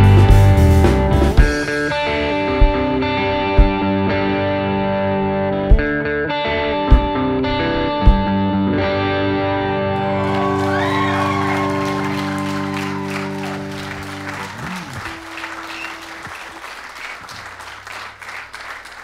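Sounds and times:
rock band final chord: 7.0s - 16.5s
audience applause: 10.0s - 19.0s
crowd cheers: 10.0s - 19.0s.

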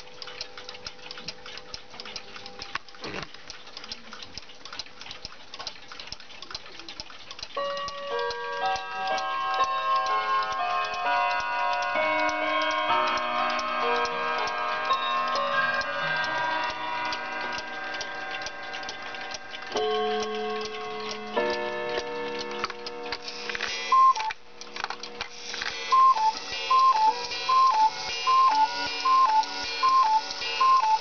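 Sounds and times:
clock ticking: 0.0s - 31.0s
cuckoo clock calling: 6.2s - 24.4s, 25.8s - 31.0s
melody of held notes: 7.6s - 23.2s.

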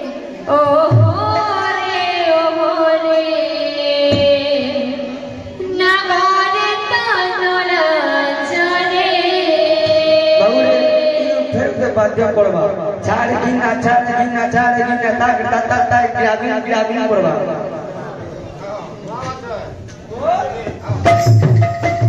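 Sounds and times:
drum strokes: 20.6s - 22.0s.

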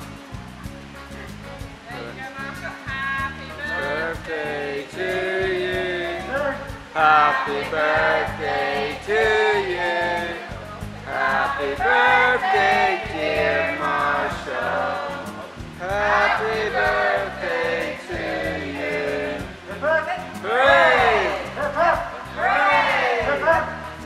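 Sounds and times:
song with singing: 3.4s - 24.0s
steady bass line: 18.1s - 24.0s.

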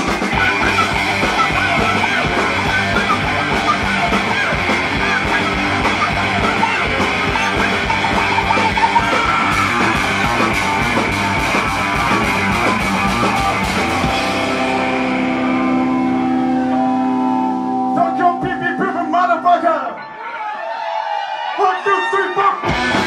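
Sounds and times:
punk rock band playing: 0.0s - 20.4s, 21.6s - 23.0s
guitar chord ringing: 13.9s - 20.2s.

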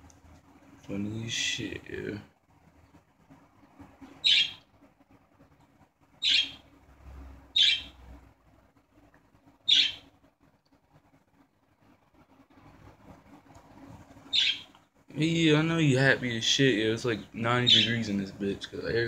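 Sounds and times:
budgerigar chirping: 4.2s - 4.6s, 6.2s - 6.7s, 7.6s - 8.0s, 9.7s - 10.1s, 14.3s - 14.7s, 17.7s - 18.0s.

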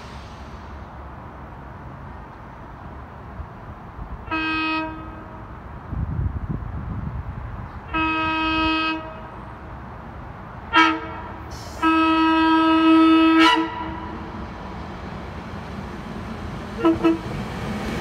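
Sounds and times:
train air horn blasts: 4.2s - 5.4s, 7.9s - 9.3s, 10.7s - 14.2s, 16.8s - 17.3s.

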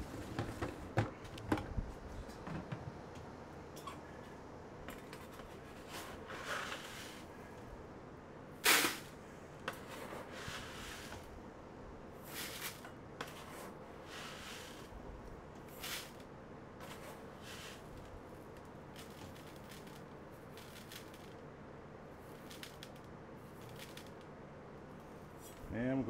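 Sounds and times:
fertilizer granules swishing: 12.2s - 14.9s, 15.7s - 16.2s, 16.8s - 18.1s.

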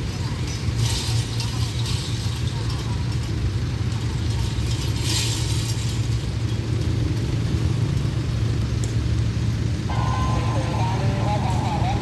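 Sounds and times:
vehicles idling: 0.0s - 12.0s.

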